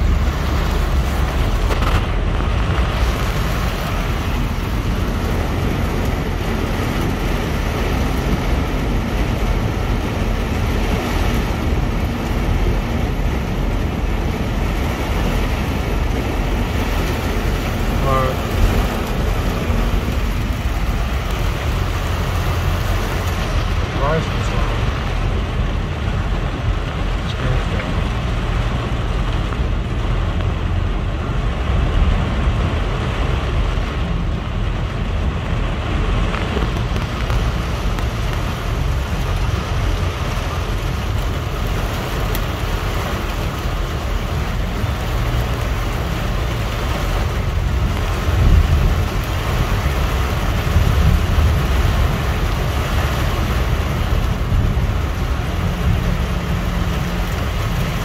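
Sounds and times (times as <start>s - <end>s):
low rumble: 0.0s - 58.0s
rain and wind beating on a car: 0.0s - 58.0s.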